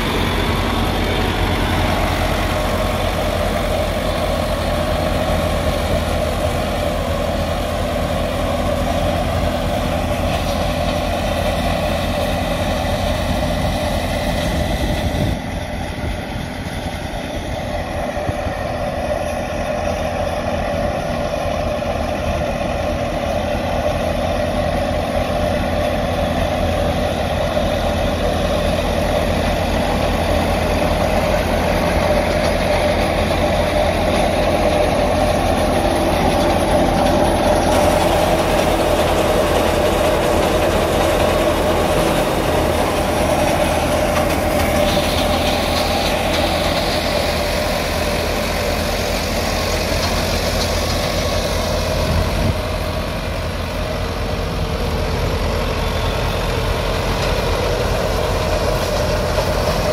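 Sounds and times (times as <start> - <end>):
thresher machinery running: 0.0 - 59.9
tractor diesel engine running: 0.0 - 59.9.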